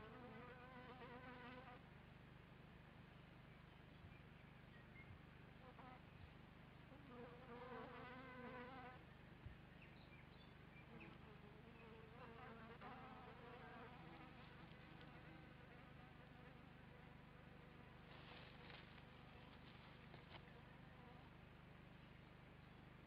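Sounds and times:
fly buzzing faintly: 0.0 - 1.9, 5.6 - 9.6, 10.8 - 21.6
steady low hum: 0.0 - 23.0.

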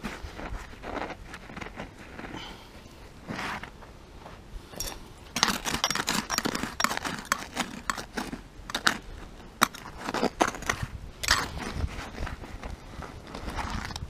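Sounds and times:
shovel scraping and scooping soil: 3.2 - 3.8, 4.7 - 14.0.

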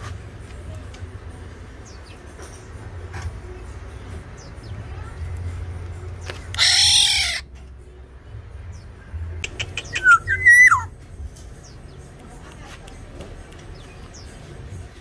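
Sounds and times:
bird harsh squawk: 6.6 - 7.5, 9.4 - 10.9
bird whistle rising and falling: 10.0 - 10.9.

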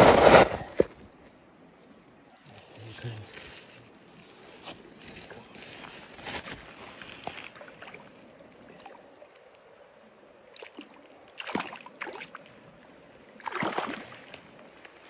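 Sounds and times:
stream trickling: 6.7 - 15.0
fish splashing and thrashing: 13.4 - 14.7.

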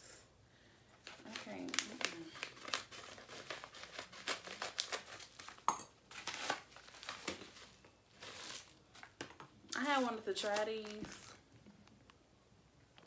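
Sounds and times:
packaging bag crinkling: 1.1 - 9.2, 10.0 - 11.4.

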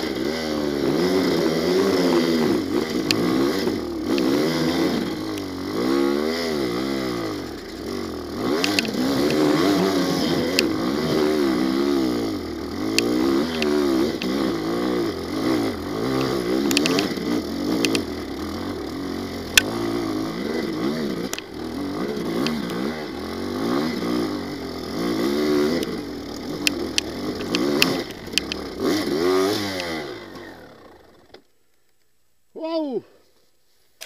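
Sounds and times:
motorcycle engine revving: 0.0 - 31.5
sharp ticks and knocks: 2.8 - 4.5, 7.6 - 9.8, 10.4 - 11.0, 12.8 - 14.6, 16.0 - 18.3, 19.5 - 20.0, 21.2 - 21.6, 22.3 - 23.0, 25.7 - 30.5.

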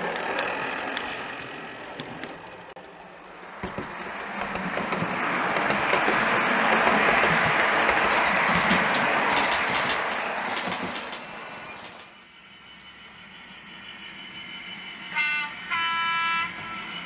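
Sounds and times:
rail joint clicks: 0.0 - 13.0
model train running past: 0.0 - 17.0.

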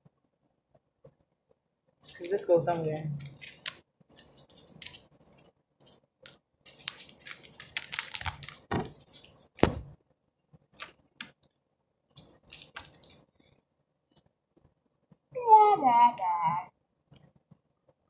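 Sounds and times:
plastic parts rustling: 2.0 - 9.6, 12.2 - 13.2.

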